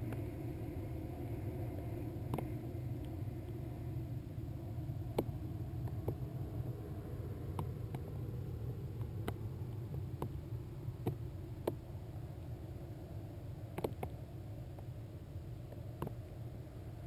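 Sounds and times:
muffled low rumble: 0.0 - 17.0.

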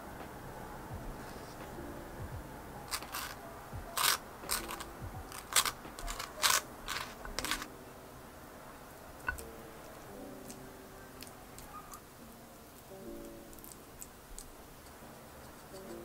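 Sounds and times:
spreader scraping toast: 2.9 - 3.4, 4.0 - 7.7.

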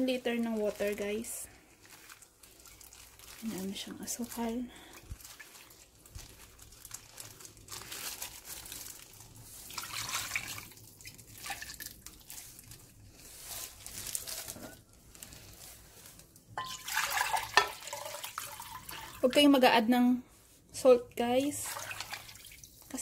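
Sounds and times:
liquid pouring and splashing: 1.6 - 3.7, 4.3 - 14.5, 16.6 - 19.3, 21.5 - 23.0
water running into a bowl: 9.7 - 12.4, 16.6 - 19.3, 21.6 - 22.9.

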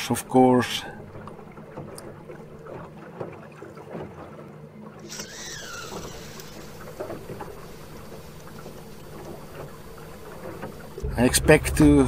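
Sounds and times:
water noise: 0.0 - 12.0
electric motor humming: 5.0 - 11.1.

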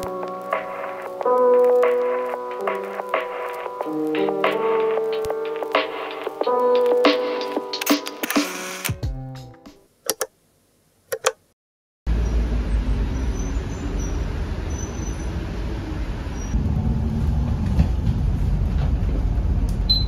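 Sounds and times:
music: 0.0 - 9.9
bus engine drone inside cabin: 12.1 - 20.0
city traffic rumble: 12.1 - 20.0.

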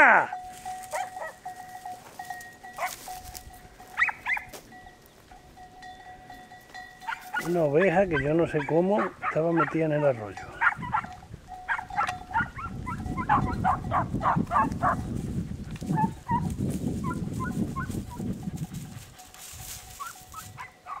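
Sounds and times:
dogs yelping: 0.3 - 1.7, 2.6 - 3.2, 3.8 - 4.6, 7.0 - 15.2, 15.9 - 21.0.

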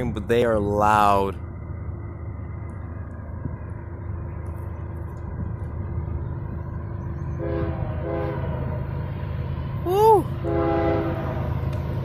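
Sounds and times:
diesel locomotive rumbling: 0.0 - 12.0
train air horn blasts: 7.4 - 8.7, 10.4 - 11.5.

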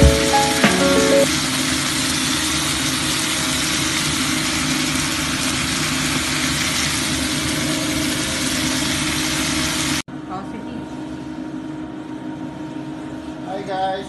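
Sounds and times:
pot steaming with rushing hiss: 1.3 - 10.0.

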